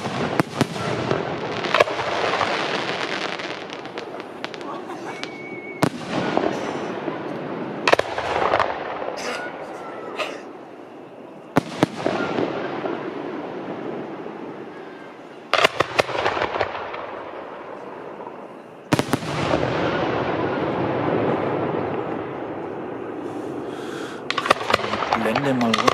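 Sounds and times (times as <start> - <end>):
fireworks bursting with bangs: 0.0 - 25.9.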